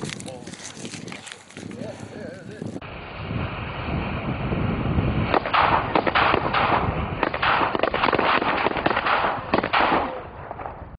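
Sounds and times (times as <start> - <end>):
firecrackers banging: 5.2 - 10.9.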